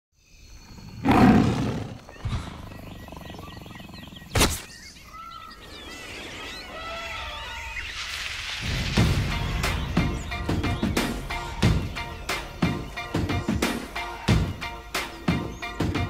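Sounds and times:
low jungle background: 0:00.2 - 0:16.0
bird-like chirping calls: 0:00.6 - 0:08.2
animal roar: 0:00.8 - 0:04.3
sharp crack: 0:04.3 - 0:04.7.

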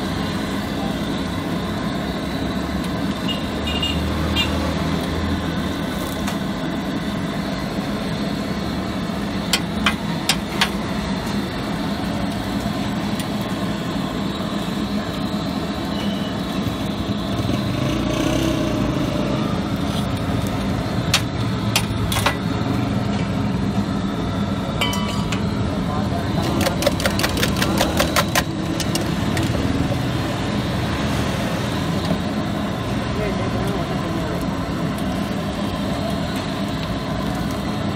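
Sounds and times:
street noise: 0:00.0 - 0:37.9
metal utensils clacking on griddle: 0:24.8 - 0:25.5.

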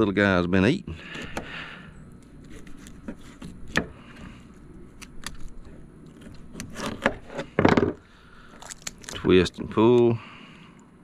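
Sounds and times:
knife cutting through fish bone: 0:02.4 - 0:04.2, 0:05.0 - 0:07.5.

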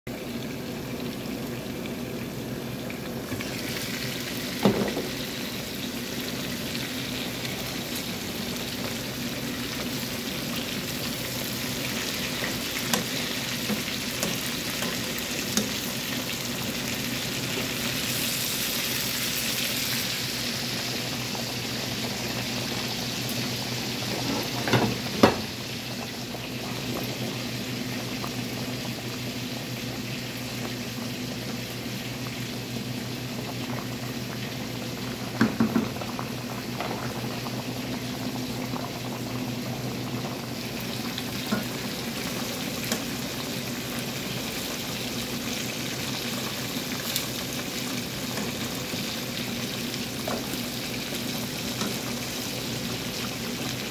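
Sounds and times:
chicken sizzling in oil: 0:00.1 - 0:53.9.

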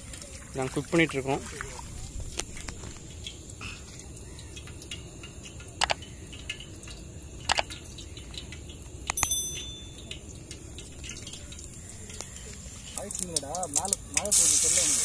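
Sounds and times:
outdoor ambient rumble: 0:00.0 - 0:14.5
water dripping: 0:00.0 - 0:15.0
short bright ring: 0:09.2 - 0:10.1.

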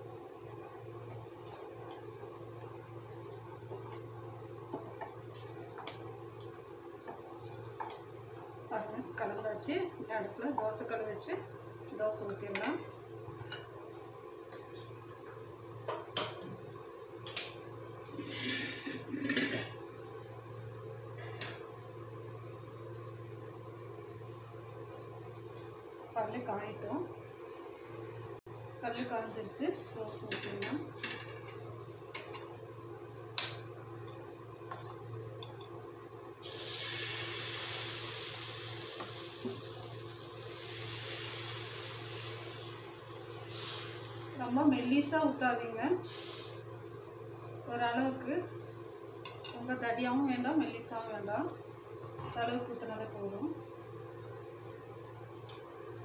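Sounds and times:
batter sizzling on griddle: 0:36.4 - 0:44.8, 0:46.0 - 0:47.2
gas flame hissing: 0:36.4 - 0:46.9.

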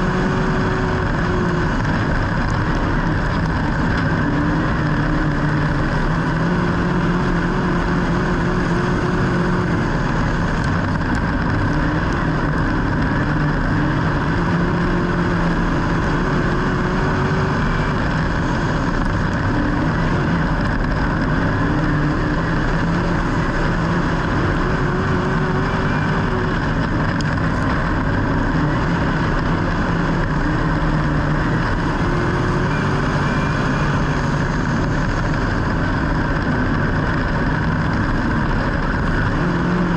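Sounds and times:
loud steady rushing noise: 0:00.0 - 0:39.9
racing engine revving: 0:00.0 - 0:39.9.

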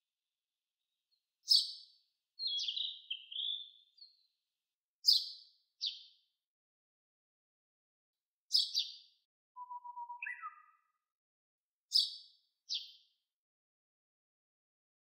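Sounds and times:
songbirds chirping: 0:00.9 - 0:04.4, 0:05.0 - 0:06.3, 0:08.5 - 0:11.1, 0:11.9 - 0:13.2.

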